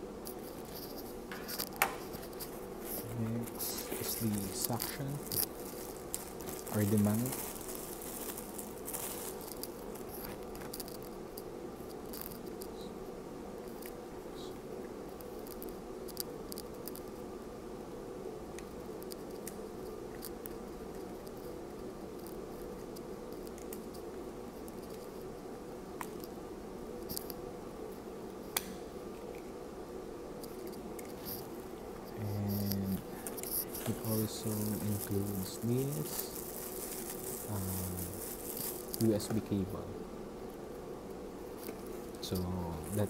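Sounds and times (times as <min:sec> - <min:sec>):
faint steady hum: 0:00.0 - 0:43.0
plastic bag crinkling: 0:00.5 - 0:11.1, 0:32.5 - 0:39.6, 0:41.5 - 0:43.0.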